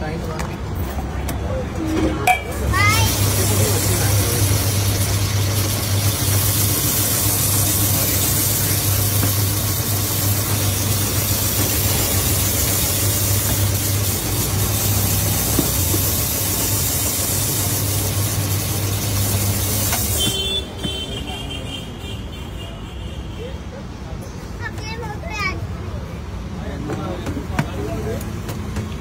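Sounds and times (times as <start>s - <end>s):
mechanical hum: 0.0s - 22.4s.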